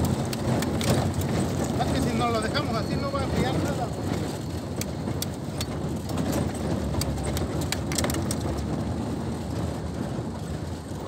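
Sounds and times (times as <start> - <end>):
steady low rumble: 3.5 - 11.0.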